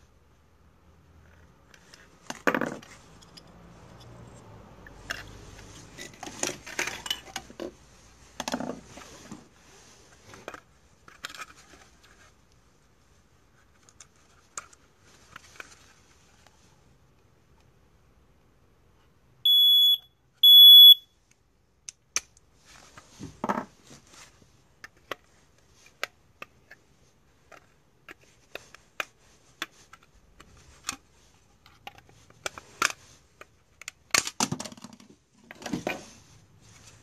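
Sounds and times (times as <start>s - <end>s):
rustling: 5.0s - 16.9s, 22.6s - 26.0s, 35.3s - 37.0s
smoke detector beeps: 19.5s - 21.1s.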